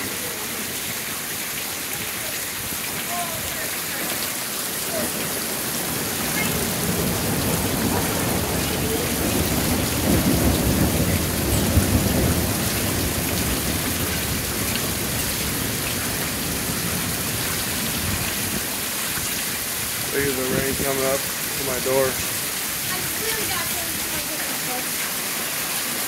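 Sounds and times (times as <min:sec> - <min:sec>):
steady rain falling: 0:00.0 - 0:26.0
thunder rumbling: 0:04.9 - 0:18.8.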